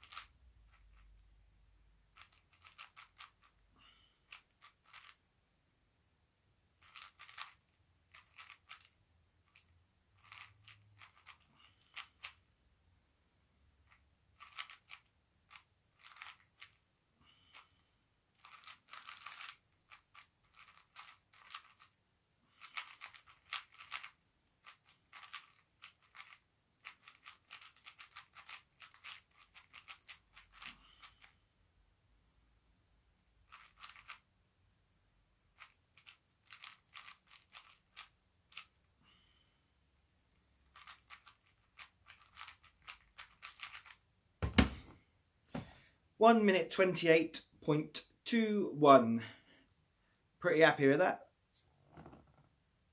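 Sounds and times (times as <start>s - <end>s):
puzzle cube clicking: 0.0s - 1.3s, 2.2s - 3.6s, 4.2s - 5.2s, 6.8s - 12.4s, 13.9s - 16.8s, 18.4s - 22.0s, 22.6s - 31.3s, 33.5s - 34.2s, 35.6s - 38.8s, 40.7s - 44.8s.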